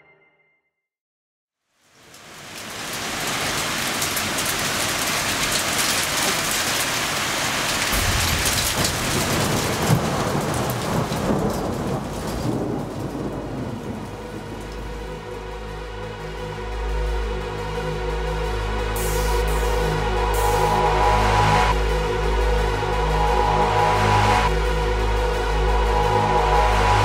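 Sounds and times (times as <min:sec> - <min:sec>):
steady rain falling: 0:01.6 - 0:27.0
thunder rumbling: 0:07.8 - 0:15.6.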